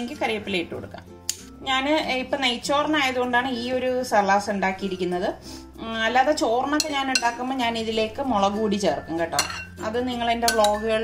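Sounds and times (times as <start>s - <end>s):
fork clinking against glass bowl: 6.8s - 7.4s, 9.4s - 9.8s, 10.5s - 10.9s.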